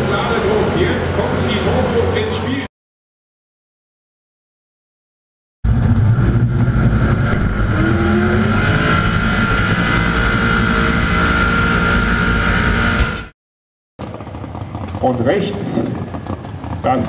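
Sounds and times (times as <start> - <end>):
drag racing engines running: 0.0 - 2.7, 5.6 - 13.3, 14.0 - 17.0
high whine: 5.6 - 13.4.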